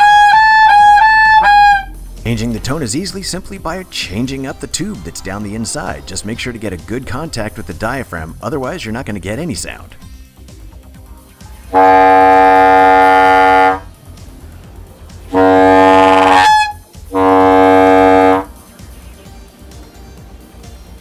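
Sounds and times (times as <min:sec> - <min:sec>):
air horn blasts: 0:00.0 - 0:02.8, 0:11.7 - 0:14.0, 0:15.3 - 0:18.5
horn squealing: 0:00.0 - 0:06.8, 0:11.7 - 0:13.9, 0:15.3 - 0:18.5.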